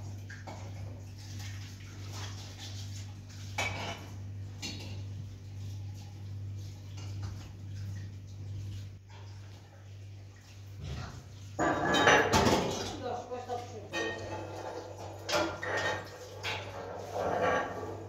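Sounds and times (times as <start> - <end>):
kitchenware clinking and knocking: 11.6 - 13.1, 13.8 - 18.0.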